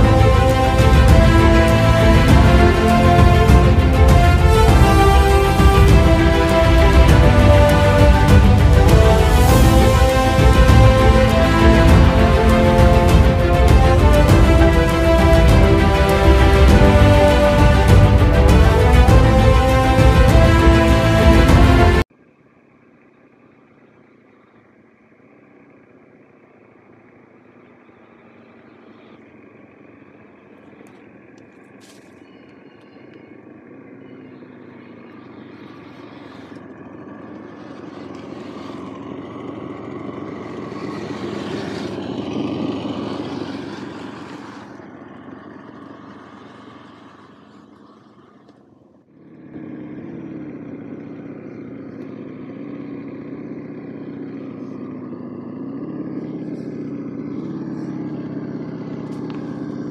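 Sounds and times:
simulated engine sound: 0.0 - 59.9.

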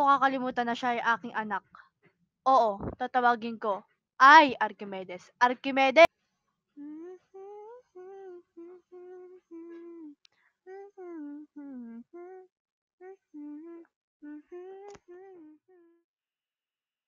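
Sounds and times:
woman humming: 6.8 - 16.0.

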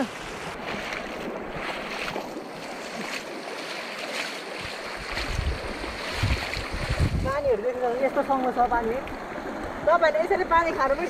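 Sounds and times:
rushing stream water: 0.0 - 11.0
low rumbles on microphone: 4.7 - 7.5.

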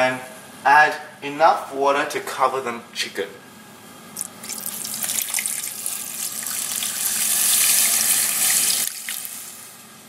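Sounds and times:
water pouring into a metal pot: 4.4 - 9.3.

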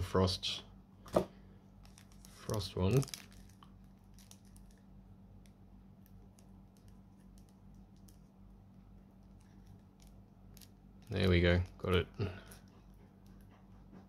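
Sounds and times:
low steady hum: 0.0 - 14.0
fingernails crinkling cellophane: 1.8 - 4.9.

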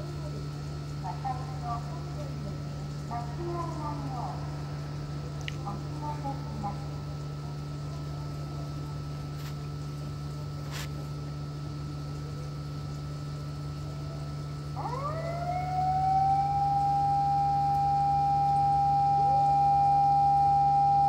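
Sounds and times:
siren over loudspeakers: 14.7 - 21.0.

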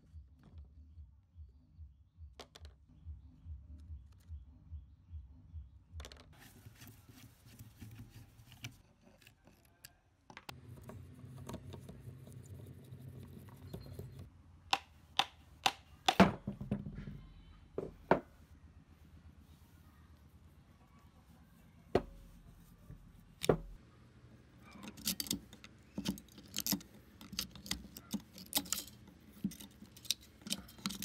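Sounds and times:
scraping and handling of parts: 24.6 - 31.0.

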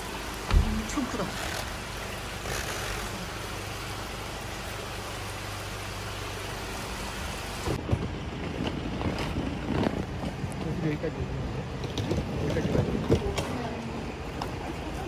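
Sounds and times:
rough uneven rumble with knocks: 0.0 - 3.4, 7.6 - 15.0
road rush: 0.0 - 15.0.

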